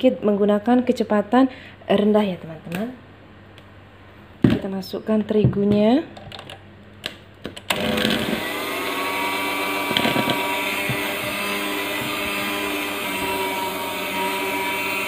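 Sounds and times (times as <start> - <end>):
electric hand mixer running: 7.7 - 15.0.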